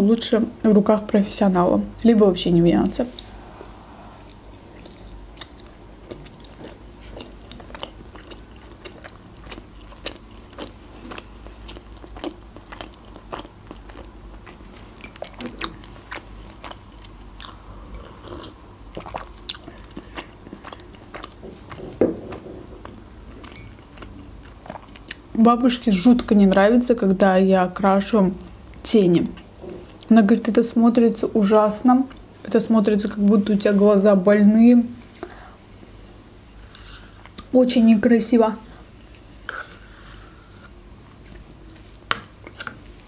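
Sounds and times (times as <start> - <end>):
person chewing: 3.2 - 25.3.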